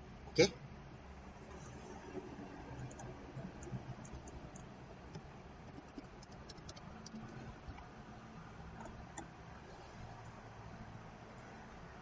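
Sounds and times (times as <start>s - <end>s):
low steady hum: 0.0s - 12.0s
mouse and keyboard clicks: 2.8s - 7.8s.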